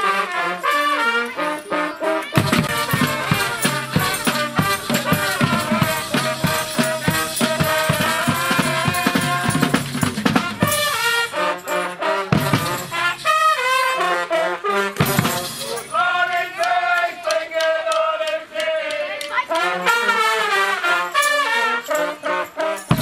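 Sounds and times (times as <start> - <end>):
brass band playing: 0.0 - 17.0, 19.3 - 23.0
steady drum beat: 2.4 - 11.3, 12.3 - 13.3, 15.0 - 16.2.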